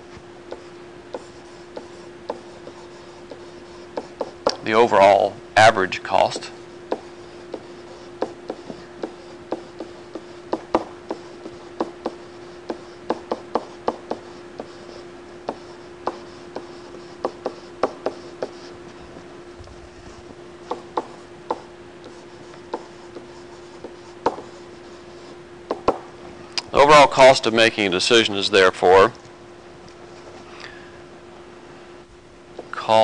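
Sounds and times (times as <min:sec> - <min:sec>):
stylus tapping on a tablet: 0:24.2 - 0:24.4, 0:25.7 - 0:26.1.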